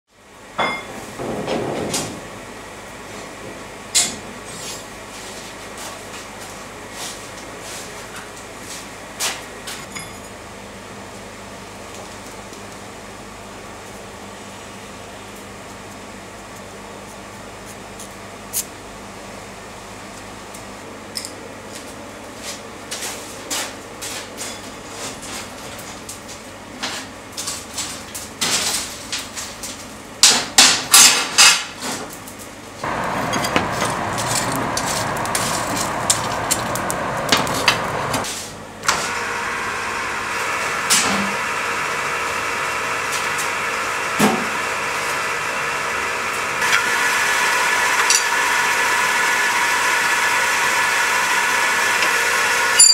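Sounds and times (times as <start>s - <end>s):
metal tools clinking and knocking: 9.8s - 10.3s, 33.2s - 34.6s, 48.1s - 48.3s
machine running steadily: 32.8s - 52.9s.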